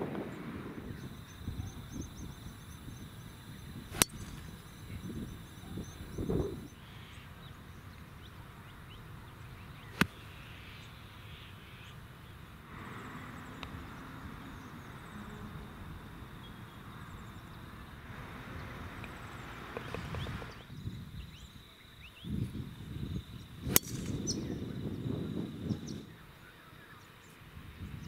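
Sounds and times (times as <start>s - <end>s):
golf club striking ball: 2.8s - 5.2s, 9.9s - 10.2s, 23.7s - 24.4s
faint putt tap: 19.8s - 20.5s.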